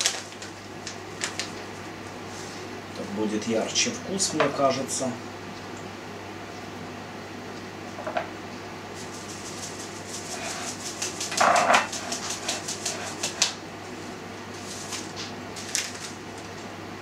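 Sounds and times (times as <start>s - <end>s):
dried herbs tapping and rustling: 9.0s - 13.6s.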